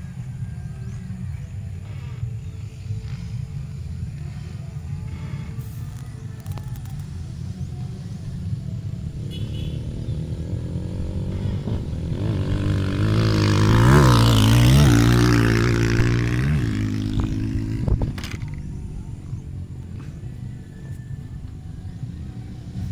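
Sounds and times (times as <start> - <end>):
dirt bike engine passing: 9.1 - 20.8.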